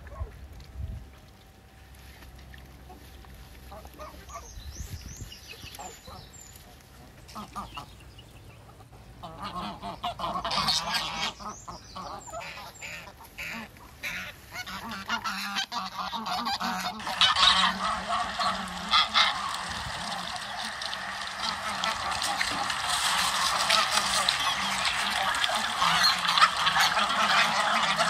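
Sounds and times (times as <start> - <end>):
geese honking: 5.8 - 8.0, 8.7 - 28.0.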